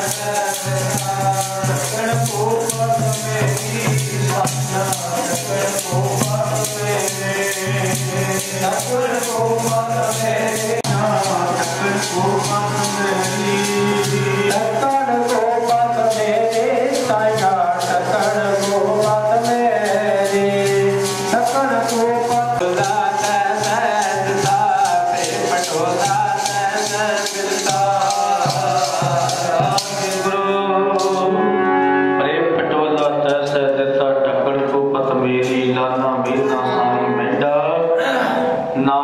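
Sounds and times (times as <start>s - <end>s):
hand drum beating: 0.0s - 31.3s
devotional singing: 0.0s - 39.0s
harmonium drone: 10.9s - 22.6s, 30.9s - 33.2s, 36.4s - 38.7s.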